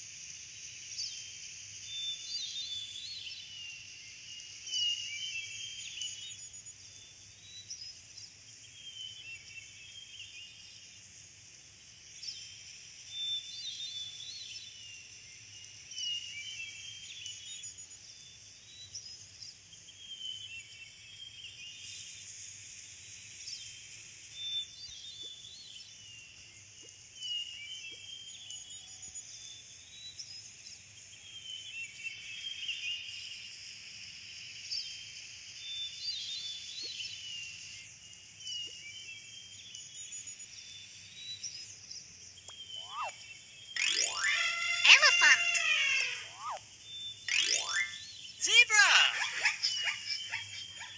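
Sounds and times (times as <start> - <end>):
steady high-pitched hiss: 0.0 - 50.9
small birds chirping: 23.0 - 50.9.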